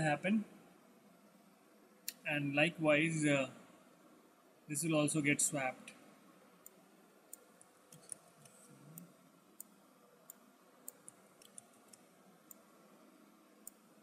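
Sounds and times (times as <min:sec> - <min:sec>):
computer mouse and keyboard clicks: 0:06.6 - 0:12.7.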